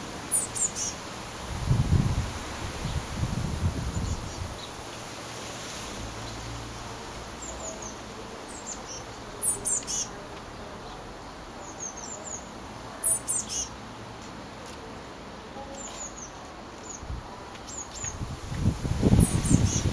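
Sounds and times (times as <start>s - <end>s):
blue tits calling: 0.0s - 1.1s, 3.9s - 5.1s, 6.1s - 18.2s, 19.1s - 19.9s.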